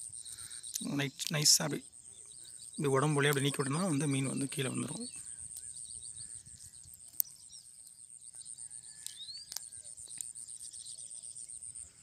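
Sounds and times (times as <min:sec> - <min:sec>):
high-pitched insect drone: 0:00.0 - 0:12.0
sharp clicks: 0:00.7 - 0:01.4.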